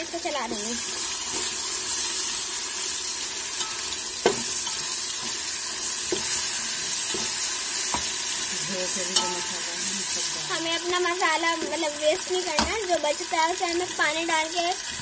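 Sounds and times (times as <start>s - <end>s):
food sizzling in hot oil: 0.0s - 15.0s
spatula stirring: 1.0s - 11.0s.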